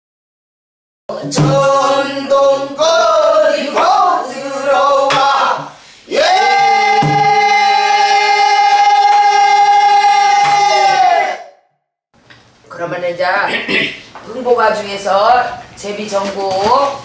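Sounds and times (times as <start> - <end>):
group singing in unison: 1.1 - 11.6
barrel drum struck: 1.2 - 2.0, 5.1 - 5.6, 6.3 - 8.0.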